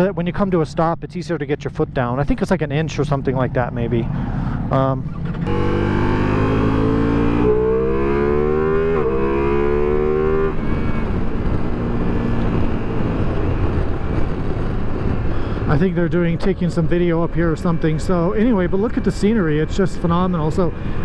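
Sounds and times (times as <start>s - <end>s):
wind and road rush: 0.0s - 21.0s
motorcycle engine accelerating: 4.6s - 19.8s.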